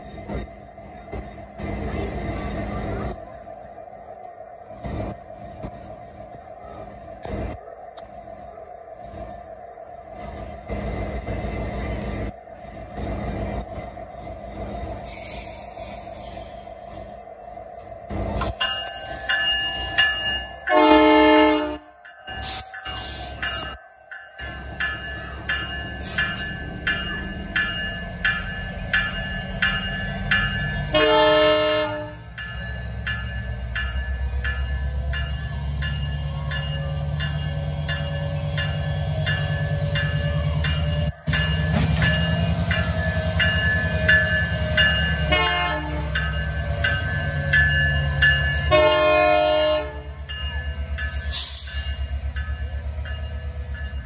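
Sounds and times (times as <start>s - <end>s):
locomotive bell ringing: 18.4s - 54.0s
locomotive horn: 20.7s - 22.0s, 30.9s - 32.3s, 45.2s - 46.2s, 48.6s - 50.2s.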